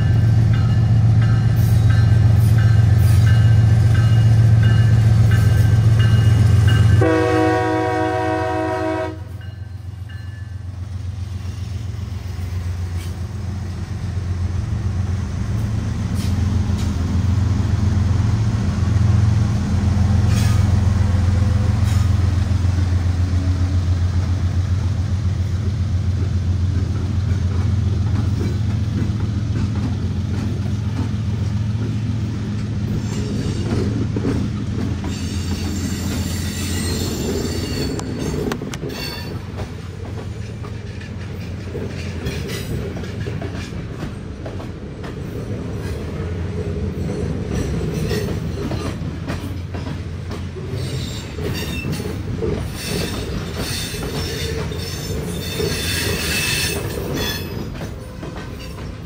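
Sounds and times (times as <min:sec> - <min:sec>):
locomotive engines droning: 0:00.0 - 0:59.0
wheel squeal: 0:35.0 - 0:39.4, 0:50.7 - 0:57.7.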